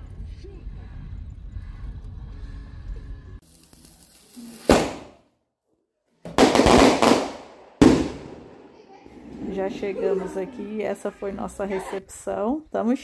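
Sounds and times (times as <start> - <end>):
firework blast: 3.5 - 5.2, 6.3 - 8.6
firework bang: 4.6 - 5.2, 6.3 - 8.6.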